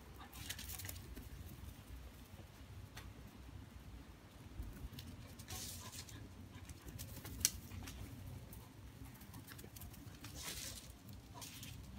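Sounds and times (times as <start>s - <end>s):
paws rustling over dry grass: 4.8s - 11.9s.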